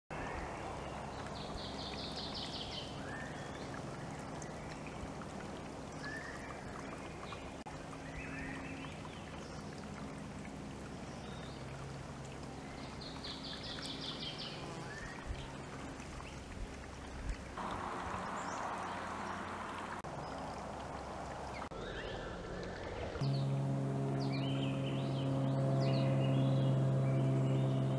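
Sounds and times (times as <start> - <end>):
small birds chirping: 0.3 - 5.2, 12.4 - 16.5
steady low hum: 23.0 - 27.9.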